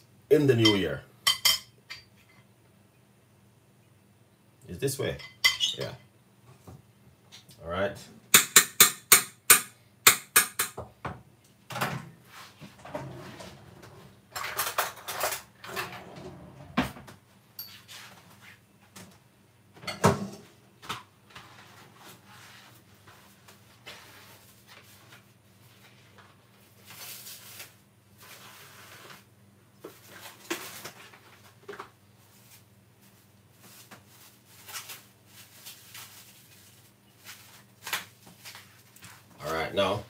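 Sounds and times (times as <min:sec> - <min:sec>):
dishes and utensils clattering: 0:12.8 - 0:16.8.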